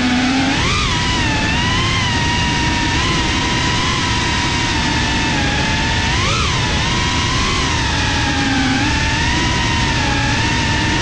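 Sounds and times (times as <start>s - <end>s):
drone propellers whining: 0.0s - 11.0s.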